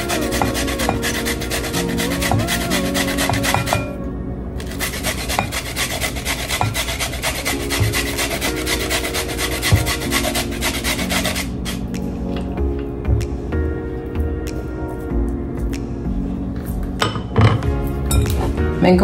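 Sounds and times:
grating by hand: 0.0 - 4.0, 4.6 - 11.8.

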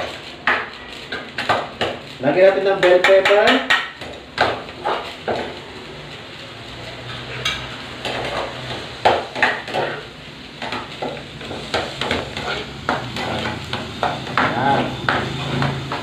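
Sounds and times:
vegetables sizzling in frying pan: 0.0 - 16.0
metal spoon scraping pan: 11.6 - 16.0.

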